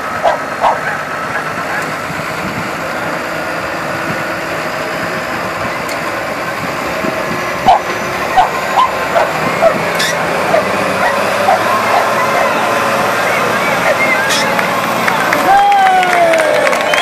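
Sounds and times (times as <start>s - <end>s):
tractor engine running: 0.0s - 17.0s
dog yipping: 0.2s - 1.0s.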